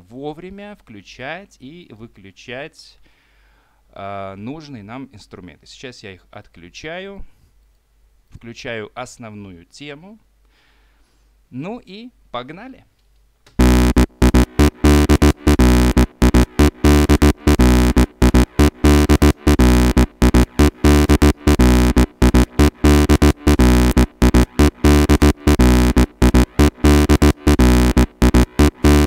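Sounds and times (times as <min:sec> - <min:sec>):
electronic techno music: 0:13.6 - 0:29.0
heavy bass: 0:13.6 - 0:29.0
stuttering synth line: 0:13.6 - 0:29.0.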